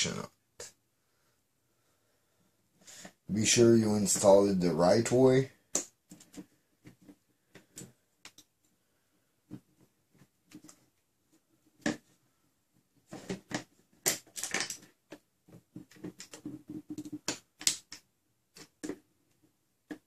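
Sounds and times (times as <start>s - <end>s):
plastic and metal parts clicking: 13.2s - 20.0s.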